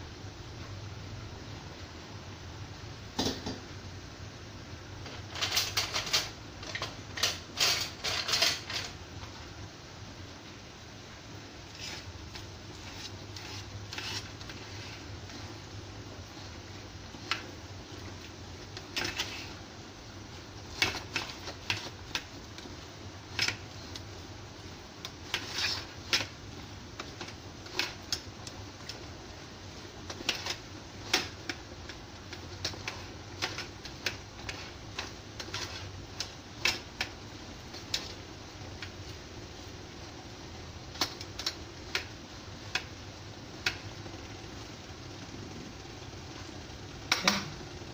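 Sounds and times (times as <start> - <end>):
steady low hum: 0.0 - 47.9
spoon scraping metal tray: 12.7 - 15.1.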